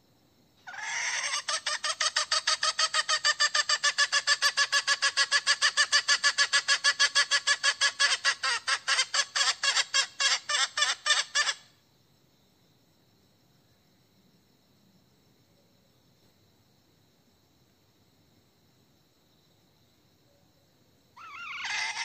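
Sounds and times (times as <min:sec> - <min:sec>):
hen clucking rapidly: 0:00.7 - 0:11.6, 0:21.2 - 0:22.0.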